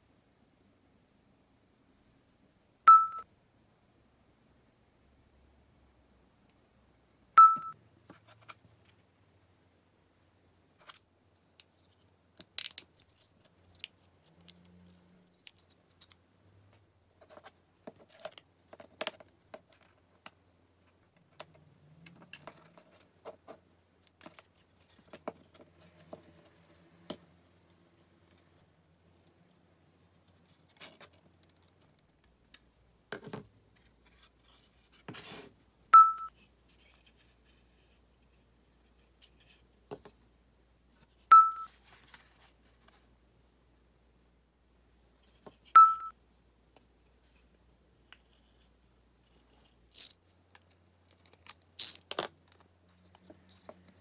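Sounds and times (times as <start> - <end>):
short electronic beep: 2.9 - 3.2, 7.4 - 7.8, 36.0 - 36.3, 41.3 - 41.7, 45.8 - 46.1.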